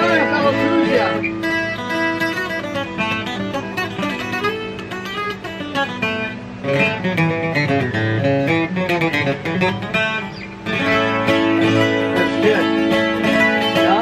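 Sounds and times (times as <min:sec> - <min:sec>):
twelve-string acoustic guitar: 0:00.0 - 0:14.0.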